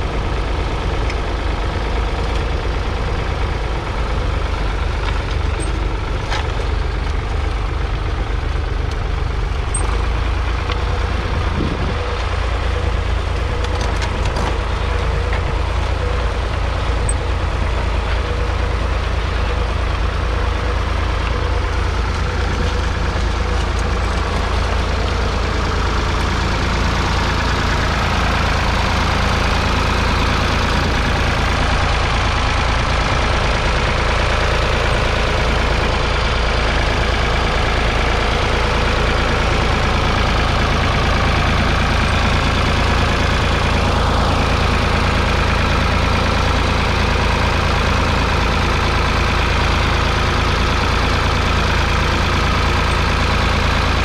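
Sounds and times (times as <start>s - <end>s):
tractor diesel engine under load: 0.0s - 54.0s.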